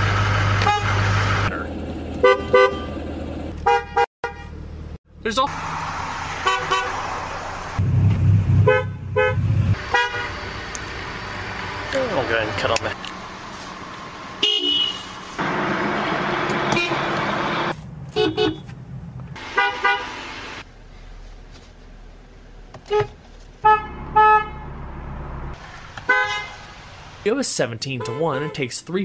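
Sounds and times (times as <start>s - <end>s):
car horns tooting: 0.6s - 1.0s, 2.2s - 3.0s, 3.6s - 4.6s, 6.4s - 7.0s, 8.6s - 10.5s, 14.4s - 15.1s, 16.6s - 17.2s, 18.1s - 18.7s, 19.4s - 20.4s, 22.8s - 24.7s, 26.0s - 26.8s, 27.9s - 28.7s.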